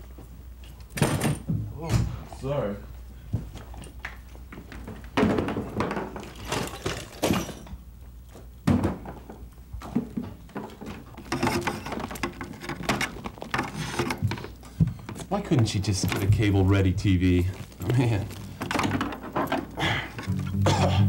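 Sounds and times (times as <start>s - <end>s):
objects thudding and clunking: 3.3s - 21.0s
objects clattering: 3.4s - 7.9s, 8.6s - 21.0s.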